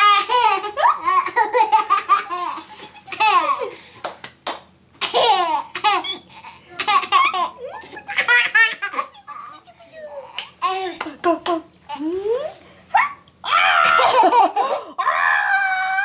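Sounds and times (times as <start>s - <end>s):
young boy laughing: 0.0s - 3.8s, 5.0s - 9.6s, 13.8s - 15.0s.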